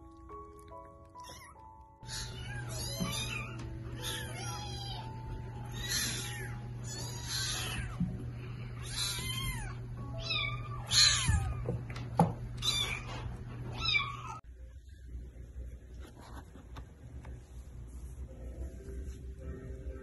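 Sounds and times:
kittens meowing: 1.2s - 8.2s, 8.8s - 11.8s, 12.6s - 13.1s
background music: 18.2s - 20.0s.

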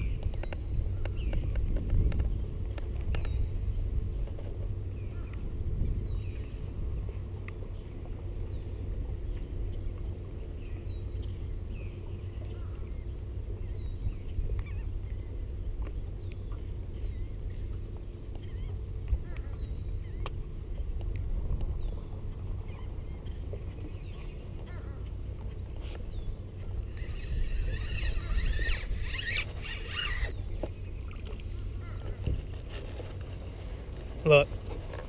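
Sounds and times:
birds calling: 0.0s - 35.0s
steady low rumble: 0.0s - 35.0s.

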